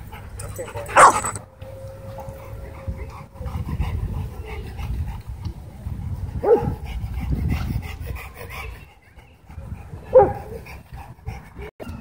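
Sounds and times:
dog whining: 0.4 - 1.4
dog barking: 0.6 - 1.4, 6.4 - 6.7, 10.1 - 10.6.

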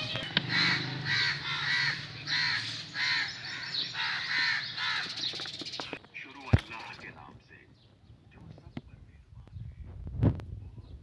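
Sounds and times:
crow cawing: 0.0 - 5.3.

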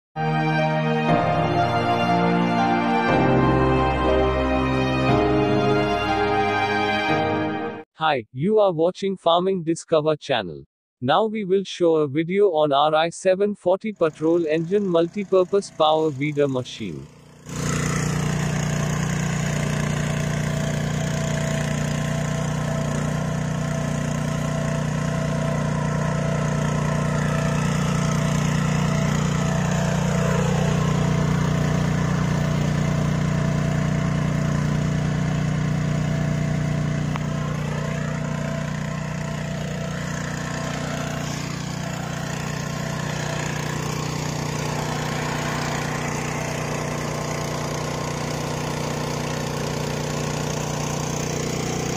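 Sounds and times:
power weeder engine running: 0.2 - 7.6, 13.9 - 51.9
rotary tines working soil: 17.1 - 51.9.

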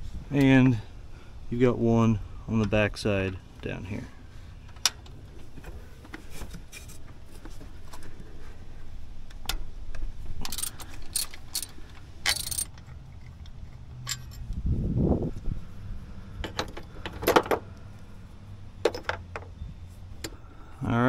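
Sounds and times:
metal tools clinking against engine: 10.4 - 14.6, 16.4 - 17.7, 18.8 - 19.6
metallic rattling: 10.4 - 14.6.

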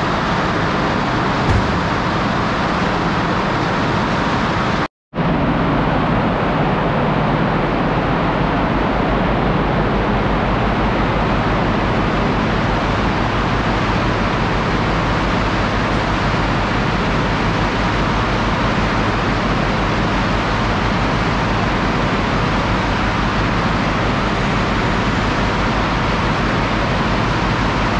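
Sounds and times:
loud industrial machinery din: 1.5 - 3.5.

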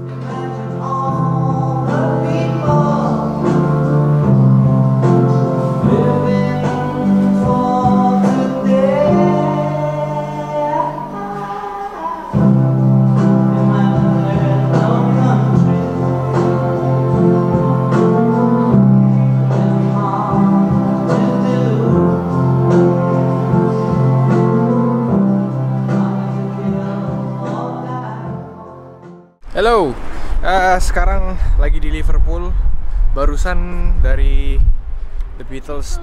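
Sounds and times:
song with singing guitar and bass: 0.0 - 29.3.

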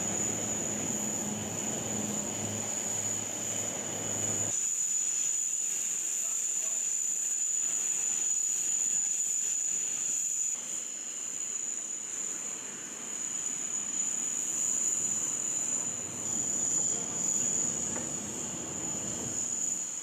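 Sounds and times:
constant background noise: 0.0 - 20.0
high-pitched machine whine: 0.0 - 20.0.

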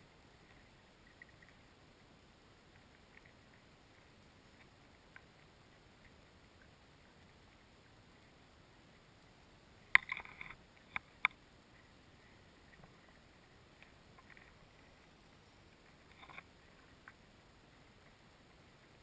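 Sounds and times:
low steady hiss: 0.0 - 19.0
sharp underwater clicks and taps: 9.9 - 11.4.

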